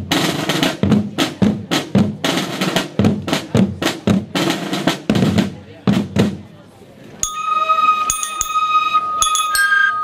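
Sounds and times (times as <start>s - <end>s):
snare drums: 0.0s - 6.5s.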